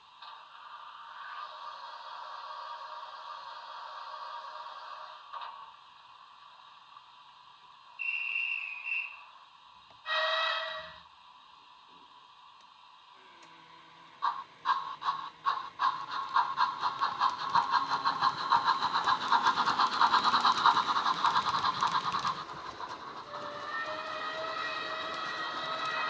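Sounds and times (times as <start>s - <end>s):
model steam locomotive chuffing: 0.1s - 7.3s, 10.0s - 11.0s, 12.9s - 26.0s
steady whistle tone: 8.0s - 9.4s, 10.1s - 11.0s, 23.1s - 26.0s.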